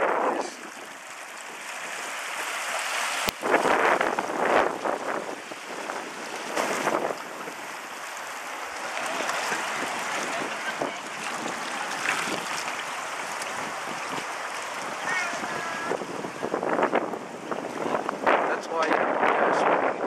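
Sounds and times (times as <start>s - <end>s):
wind on the microphone: 0.0s - 1.0s, 3.2s - 7.6s, 9.0s - 20.0s
river water rushing: 0.0s - 18.6s.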